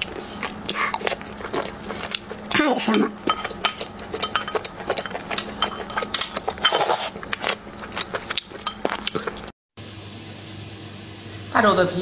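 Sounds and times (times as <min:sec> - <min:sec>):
eating sounds: 0:00.0 - 0:09.5.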